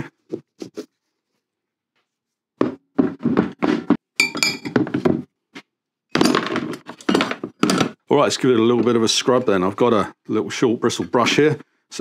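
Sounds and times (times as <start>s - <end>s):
metal parts clattering: 6.2s - 8.0s
metal parts clinking into plastic tub: 6.2s - 8.0s.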